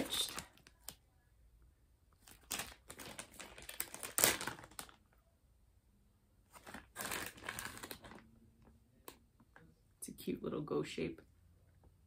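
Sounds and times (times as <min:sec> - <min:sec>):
plastic bag crinkling: 0:00.0 - 0:01.0, 0:02.2 - 0:05.1, 0:06.5 - 0:08.3.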